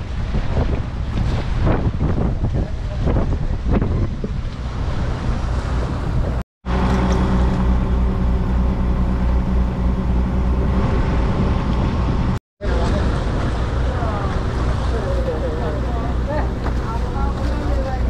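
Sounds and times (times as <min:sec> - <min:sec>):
sea noise: 0:00.0 - 0:18.0
wind: 0:00.0 - 0:18.0
boat engine humming: 0:03.8 - 0:18.0.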